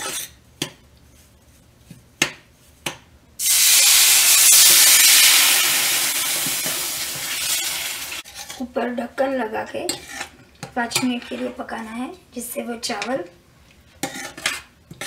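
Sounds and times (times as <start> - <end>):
metal spoon scraping pan: 0.0 - 0.4, 6.4 - 8.7, 9.8 - 11.6, 14.0 - 15.0
hot pan hissing: 3.4 - 8.2
water pouring into pan: 3.4 - 8.2.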